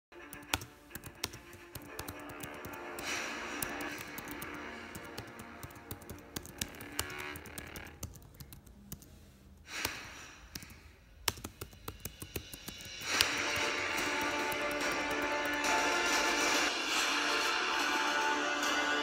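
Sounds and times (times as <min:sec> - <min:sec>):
music playing: 0:00.1 - 0:07.9, 0:11.8 - 0:19.0
keyboard typing: 0:00.2 - 0:09.2, 0:09.8 - 0:16.7.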